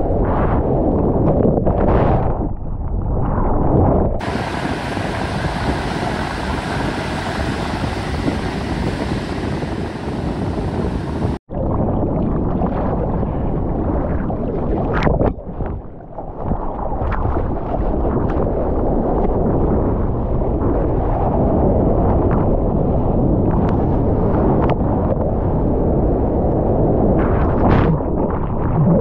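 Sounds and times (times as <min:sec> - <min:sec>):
wind buffeting microphone: 0:00.0 - 0:29.0
ocean water rushing: 0:04.2 - 0:11.4
waves breaking on shore: 0:04.2 - 0:11.4.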